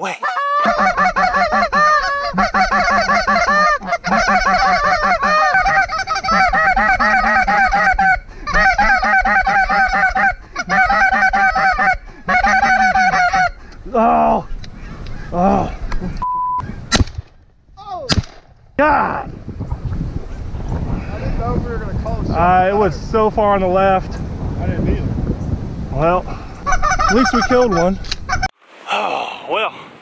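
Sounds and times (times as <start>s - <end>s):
duck calls quacking: 0.2s - 13.6s, 26.6s - 28.5s.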